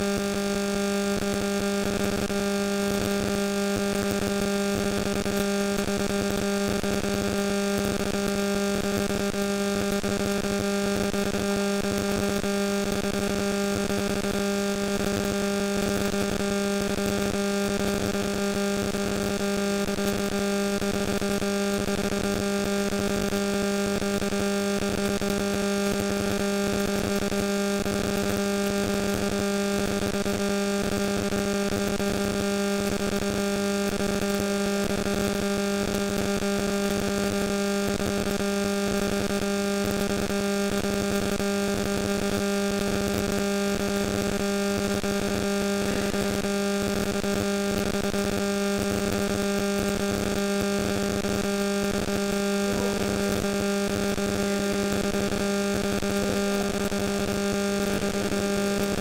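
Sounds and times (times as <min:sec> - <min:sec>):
electrical hum: 0:43.2 - 0:59.0.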